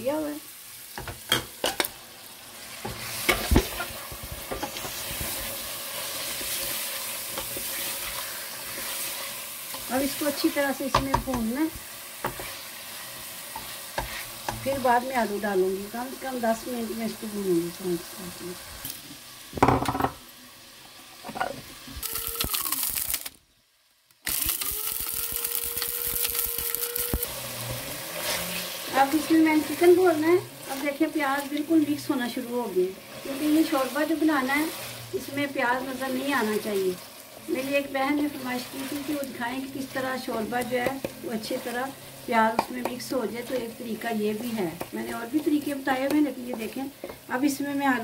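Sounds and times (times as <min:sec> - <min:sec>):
chicken sizzling in pot: 0:00.0 - 0:48.0
electric spice grinder motor: 0:24.3 - 0:28.9.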